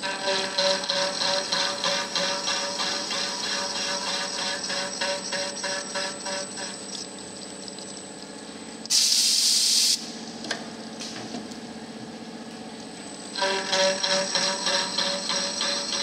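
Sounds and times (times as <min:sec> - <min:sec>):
milling machine humming: 0:00.0 - 0:08.9, 0:10.0 - 0:16.0
compressed air hiss: 0:08.9 - 0:10.0.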